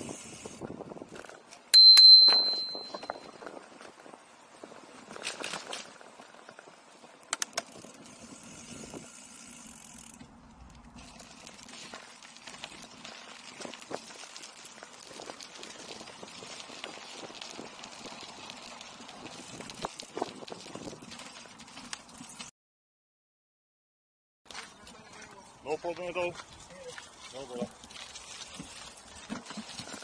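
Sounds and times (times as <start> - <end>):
bicycle tyres rattling on rough path: 0.0 - 22.5, 24.5 - 30.0
bicycle bell ding: 1.8 - 3.4.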